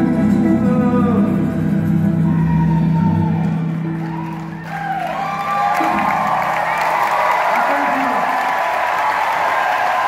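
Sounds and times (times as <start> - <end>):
upright bass: 0.0 - 4.7
acoustic guitar: 0.0 - 6.8.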